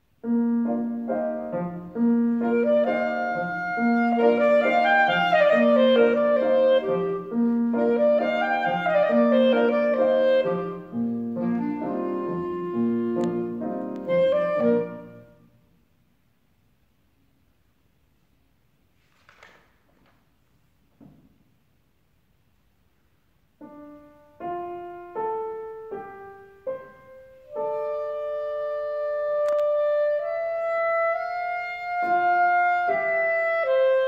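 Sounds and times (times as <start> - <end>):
piano accompaniment: 0.1 - 15.6, 23.6 - 34.0
clarinet melody: 0.2 - 15.7, 23.6 - 34.0.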